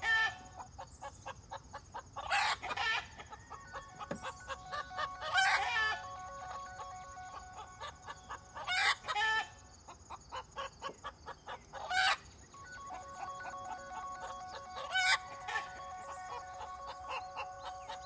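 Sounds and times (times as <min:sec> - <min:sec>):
chickens clucking: 0:00.0 - 0:18.0
chicken squawking calls: 0:02.2 - 0:09.6, 0:12.9 - 0:18.0
steady high-pitched tones: 0:03.1 - 0:09.7, 0:12.4 - 0:18.0.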